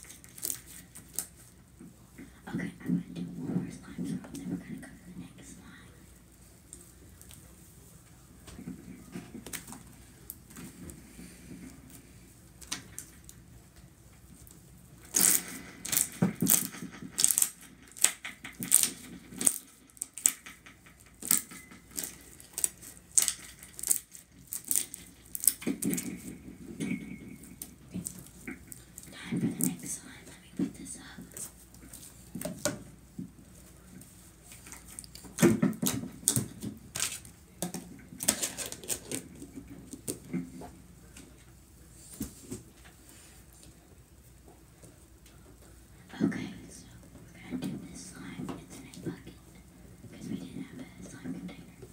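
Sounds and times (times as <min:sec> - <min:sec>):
slime squelching: 0:15.0 - 0:26.5.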